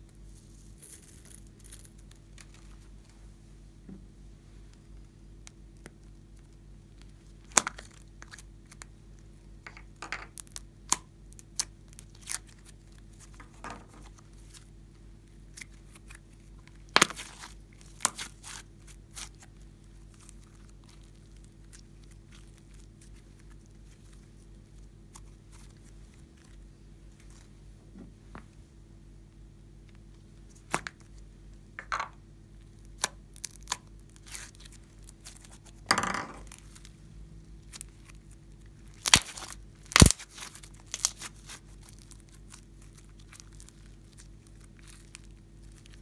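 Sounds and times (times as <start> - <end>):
slime sticky tearing and crackling: 10.4 - 13.4, 15.3 - 26.6, 32.6 - 35.8, 37.6 - 46.0.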